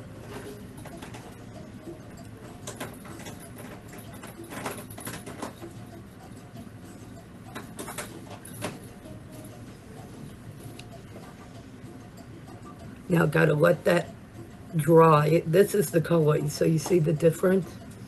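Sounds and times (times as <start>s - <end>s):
steady low hum: 0.0s - 18.0s
small handling clicks and rustles: 0.2s - 11.6s.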